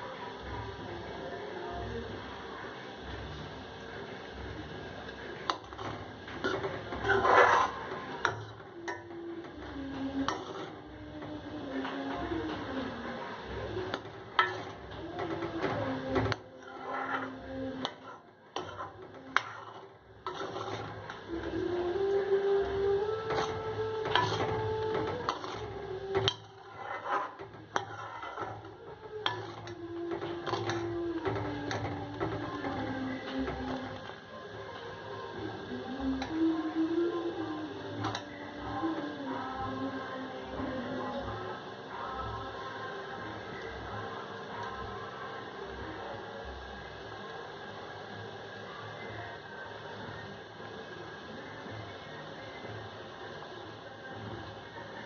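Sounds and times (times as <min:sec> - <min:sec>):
steady low hum: 0:00.0 - 0:55.0
spoon scraping pot: 0:05.4 - 0:34.2.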